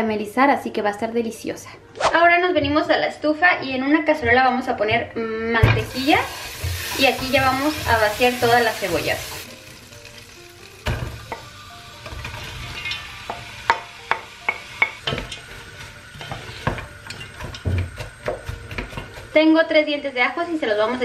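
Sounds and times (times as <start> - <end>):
butter sizzling in pot: 5.8 - 21.0.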